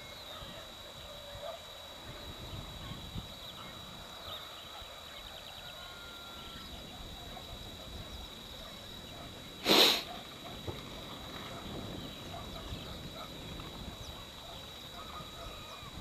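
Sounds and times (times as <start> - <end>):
loud hiss burst: 9.6 - 10.2.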